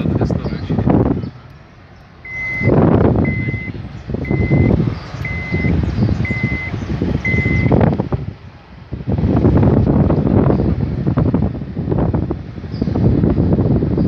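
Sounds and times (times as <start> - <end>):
wind noise on microphone: 0.0 - 14.0
electronic warning beeps: 2.2 - 7.8.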